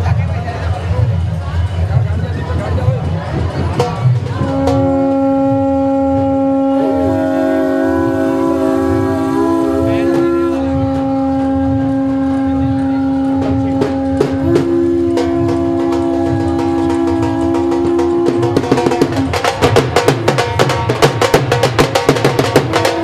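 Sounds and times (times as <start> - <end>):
higher wavering conch tone: 4.4 - 19.2
low conch shell tone: 4.4 - 19.4, 22.6 - 23.0.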